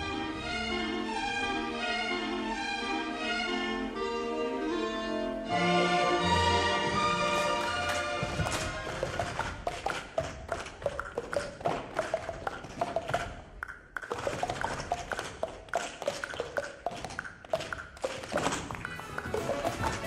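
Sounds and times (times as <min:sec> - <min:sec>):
quick ringing percussive taps: 0:08.2 - 0:20.0.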